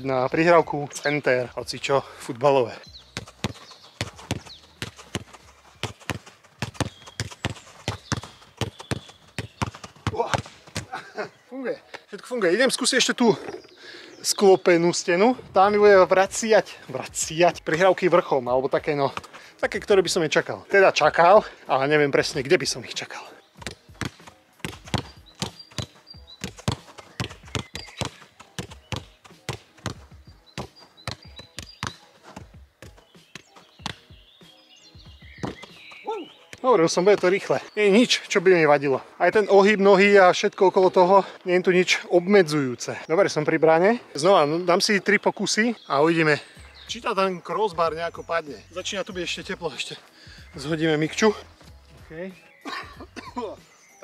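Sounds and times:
football thuds: 3.1s - 11.0s, 23.6s - 34.1s, 35.1s - 37.4s.

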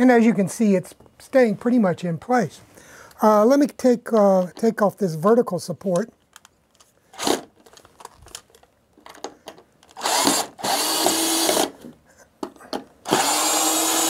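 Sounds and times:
cordless drill motor running: 10.0s - 11.7s, 13.1s - 14.0s.

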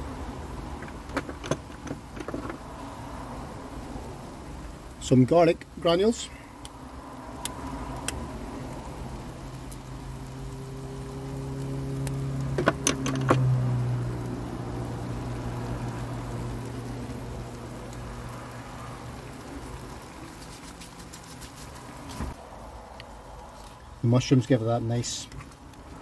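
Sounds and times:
curry sizzling in a frying pan: 0.0s - 22.4s.

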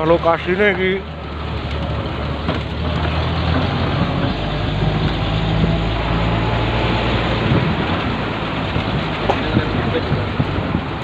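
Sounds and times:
trailer rolling rumble: 0.0s - 11.0s.

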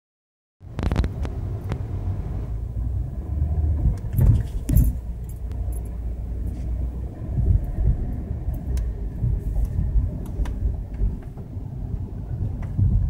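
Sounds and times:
car driving rumble from inside: 0.6s - 13.0s
light clicks and rattles: 3.8s - 6.8s.

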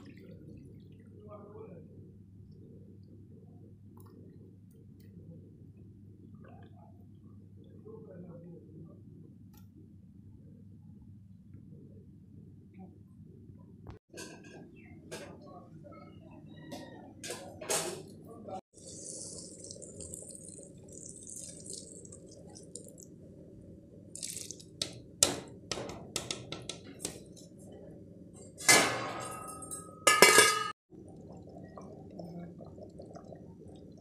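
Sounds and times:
soup bubbling: 18.7s - 25.2s, 30.9s - 34.0s
liquid pouring into pot: 18.8s - 23.2s, 24.1s - 25.1s
knocks and clinks against pot: 28.7s - 30.8s.

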